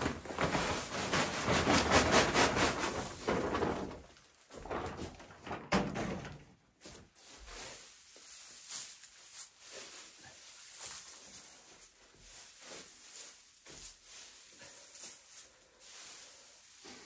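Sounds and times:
dry straw rustling: 0:06.8 - 0:17.0.

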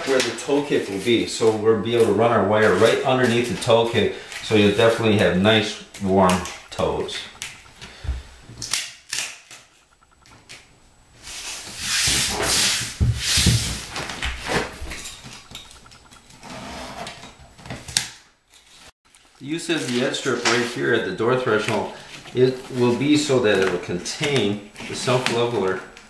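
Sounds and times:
rustling scrape: 0:11.2 - 0:15.3
taps and scuffs on floor: 0:12.0 - 0:14.7.

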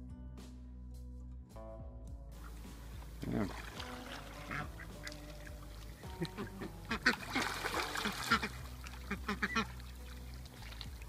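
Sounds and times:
ducks quacking: 0:02.4 - 0:11.0.

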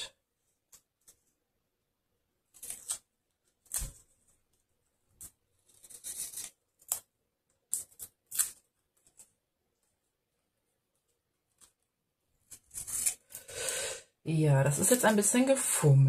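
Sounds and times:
scissors snipping tape: 0:07.7 - 0:08.6.

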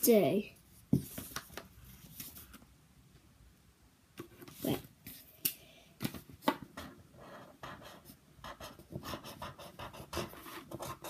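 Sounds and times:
pen scratching on paper: 0:06.8 - 0:11.0.

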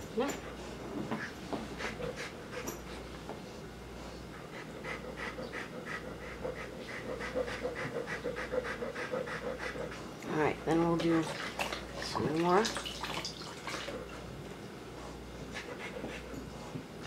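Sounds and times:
dog panting rapidly: 0:00.4 - 0:03.1, 0:04.0 - 0:12.2, 0:14.9 - 0:17.0.

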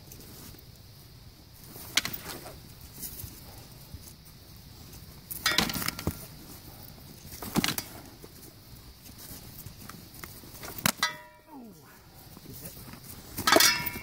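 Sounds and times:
sharp ringing clang: 0:05.4 - 0:06.0, 0:10.9 - 0:11.6, 0:13.4 - 0:14.0
swords clashing: 0:05.4 - 0:06.1, 0:10.7 - 0:11.6, 0:13.4 - 0:14.0.

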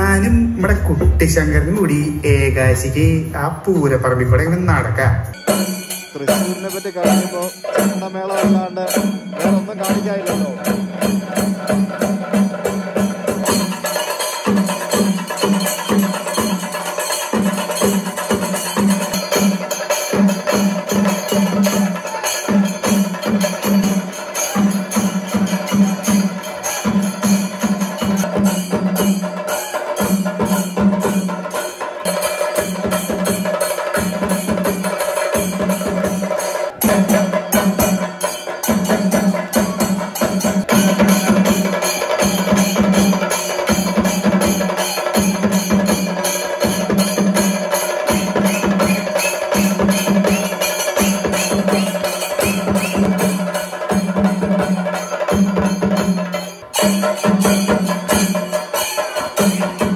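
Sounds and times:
drums beaten rapidly with sticks: 0:00.0 - 0:59.9
hand cymbals clashing: 0:05.2 - 0:59.9.

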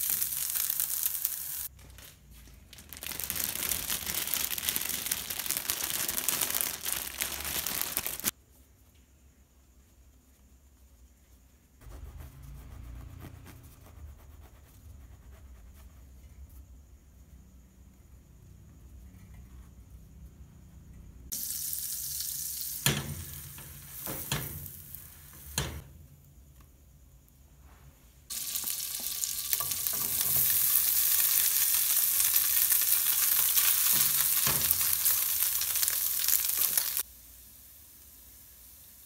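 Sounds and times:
butter sizzling in frying pan: 0:00.0 - 0:01.7, 0:21.3 - 0:25.4, 0:28.3 - 0:39.0
chicken sizzling in fat: 0:00.0 - 0:01.7, 0:02.9 - 0:08.3, 0:21.3 - 0:25.8, 0:28.3 - 0:39.0.

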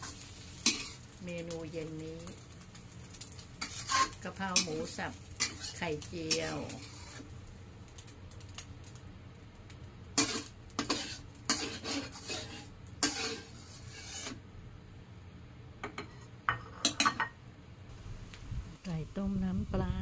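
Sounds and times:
metal spatula scraping a wok: 0:00.0 - 0:01.1, 0:03.3 - 0:07.3, 0:10.2 - 0:14.4, 0:15.9 - 0:17.0.

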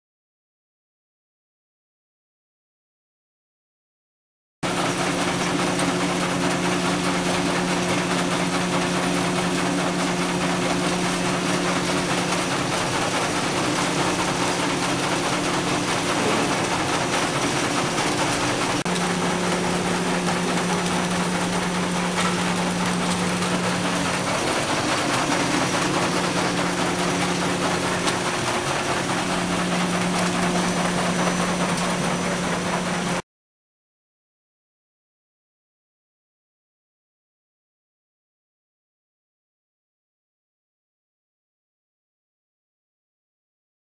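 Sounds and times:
machine rushing noise: 0:08.0 - 0:33.2
electric motor hum: 0:11.0 - 0:33.2.

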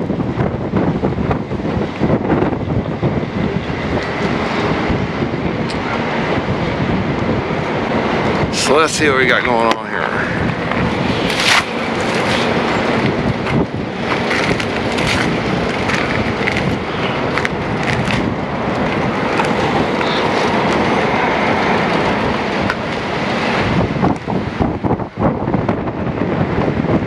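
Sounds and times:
gusty wind on microphone: 0:00.0 - 0:27.0.

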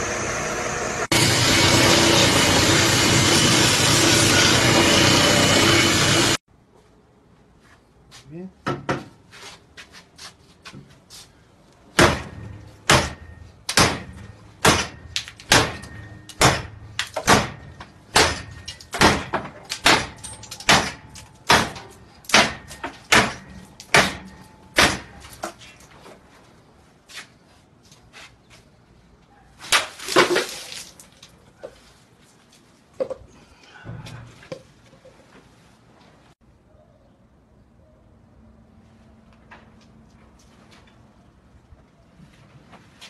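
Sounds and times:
blade chopping strikes: 0:12.0 - 0:25.2.

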